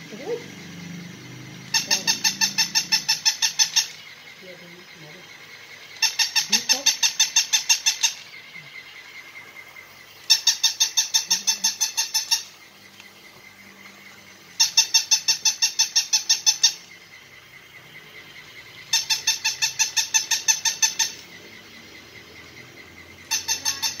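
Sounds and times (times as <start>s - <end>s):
faint steady hum: 0.0s - 24.0s
toy puppy electronic yips: 1.7s - 4.0s, 6.0s - 8.3s, 18.9s - 21.3s, 23.3s - 24.0s.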